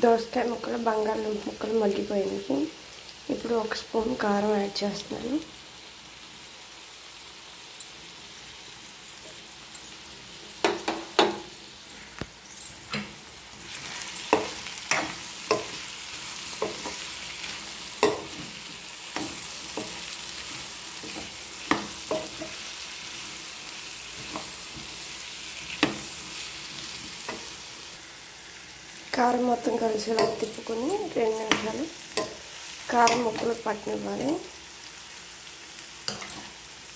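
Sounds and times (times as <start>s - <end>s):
vegetables sizzling in oil: 0.0s - 36.9s
metal spoon scraping a pan: 10.8s - 27.6s, 30.0s - 34.0s, 36.1s - 36.6s.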